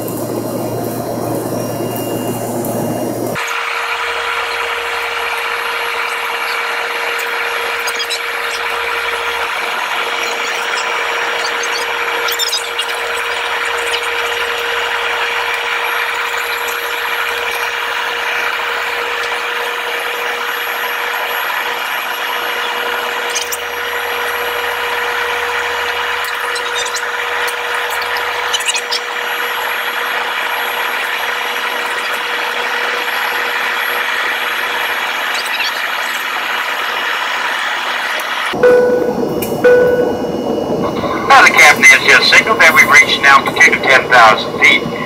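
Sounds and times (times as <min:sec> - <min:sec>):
jet cabin engine and airflow rush: 0:00.0 - 0:45.0
steady droning tone: 0:38.6 - 0:44.7.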